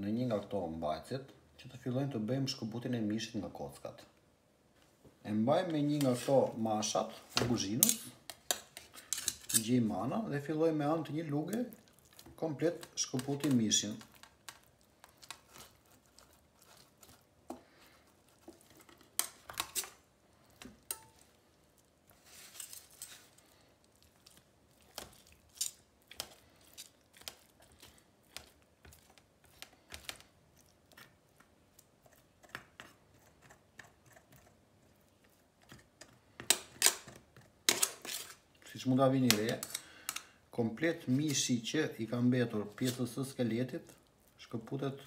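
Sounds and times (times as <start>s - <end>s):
utensils clinking on metal bowl: 7.7s - 9.7s, 20.8s - 21.3s.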